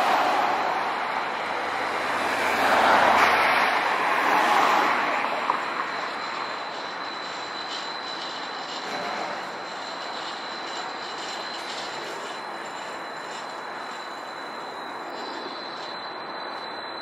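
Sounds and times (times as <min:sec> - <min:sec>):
cars passing close by: 0:00.0 - 0:07.5
faint steady high whine: 0:04.9 - 0:17.0.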